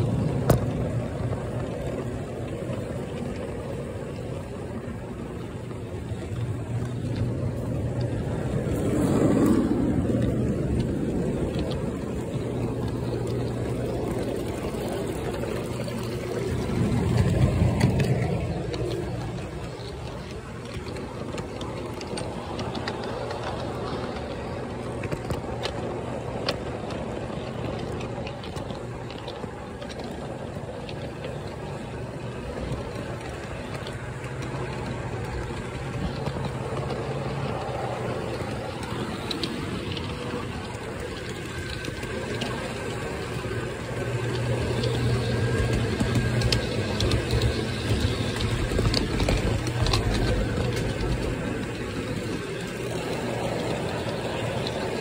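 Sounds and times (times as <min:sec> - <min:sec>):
model train drive drone: 0:00.0 - 0:55.0.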